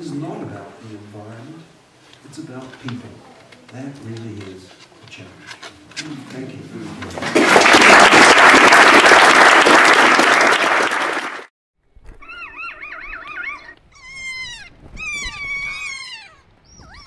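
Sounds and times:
audience applauding: 0:07.2 - 0:11.5
parrot calling: 0:12.2 - 0:17.0.

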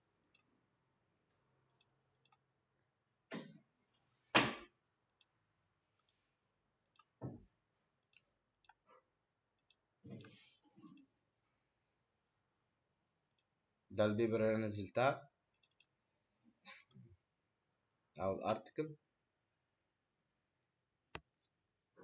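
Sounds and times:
computer mouse clicks: 0:00.2 - 0:00.5, 0:01.7 - 0:02.4, 0:06.9 - 0:07.2, 0:08.0 - 0:08.9, 0:09.6 - 0:11.1, 0:15.5 - 0:16.0.

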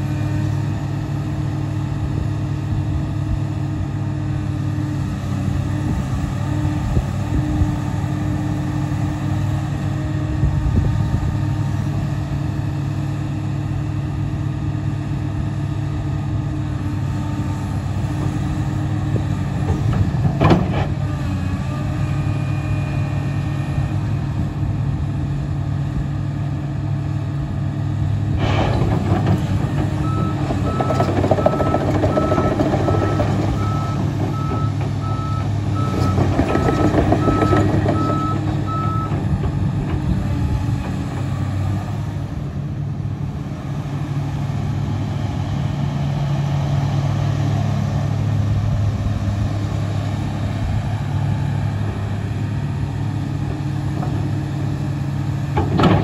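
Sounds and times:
excavator diesel engine running: 0:00.0 - 0:56.0
hydraulic and mechanical surges: 0:28.3 - 0:41.6.

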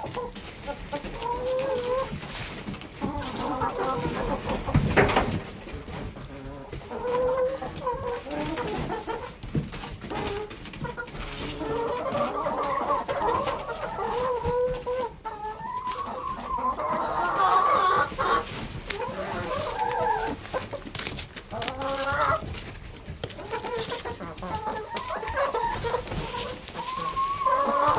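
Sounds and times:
hens clucking: 0:00.0 - 0:27.9
hens pecking taps: 0:00.0 - 0:27.9.

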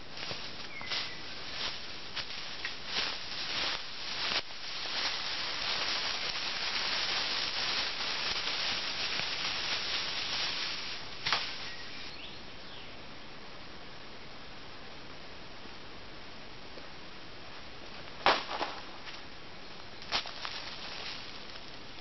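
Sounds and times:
footsteps crunching through leaves: 0:00.0 - 0:12.3, 0:18.3 - 0:19.1, 0:20.1 - 0:21.8
branch dragged over forest floor: 0:00.2 - 0:12.2, 0:20.1 - 0:21.7
branch cracking: 0:00.9 - 0:11.9, 0:18.2 - 0:19.2.

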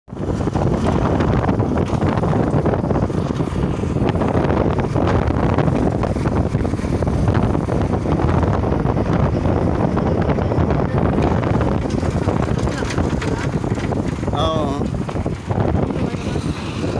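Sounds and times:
road noise: 0:00.1 - 0:16.9
wind rumble on microphone: 0:00.1 - 0:16.9.

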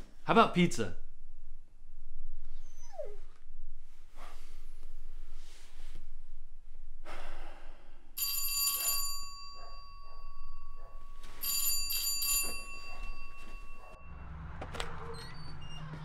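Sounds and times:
electronic doorbell ringing: 0:08.2 - 0:14.6.

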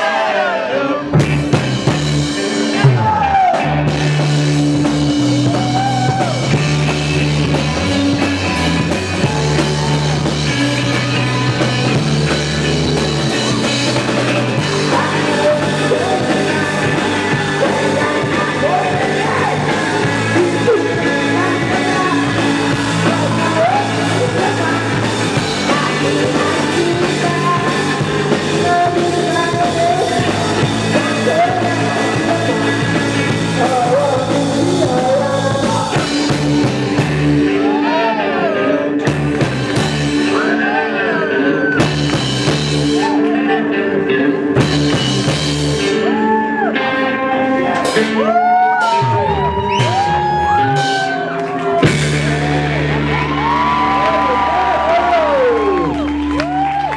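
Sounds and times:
drums: 0:00.0 - 0:56.9
electric guitars: 0:00.0 - 0:56.9
heavy bass line: 0:00.0 - 0:56.9
man singing: 0:14.6 - 0:36.4, 0:40.3 - 0:41.9, 0:43.0 - 0:44.7.

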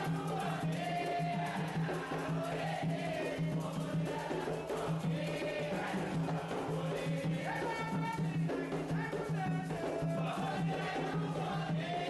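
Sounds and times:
hand drums beating quick rhythm: 0:00.0 - 0:12.0
voices singing a chant: 0:00.0 - 0:12.0.

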